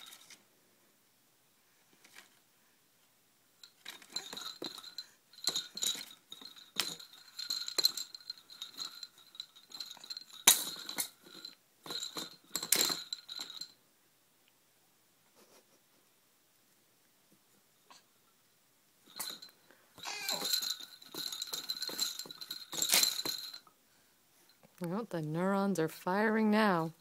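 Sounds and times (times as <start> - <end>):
baby toy rattling and jingling: 3.6 - 13.8, 19.0 - 23.7.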